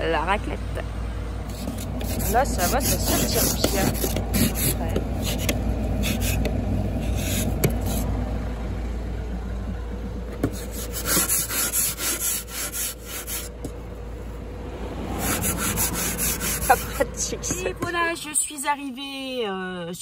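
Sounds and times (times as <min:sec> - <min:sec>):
ice scraper scraping car window: 0:01.5 - 0:08.1, 0:10.3 - 0:13.8, 0:15.1 - 0:18.2.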